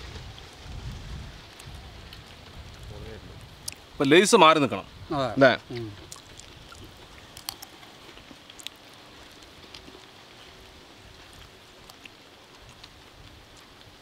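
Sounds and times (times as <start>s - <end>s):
low steady hiss: 0.0s - 14.0s
people crunching chips: 5.7s - 14.0s.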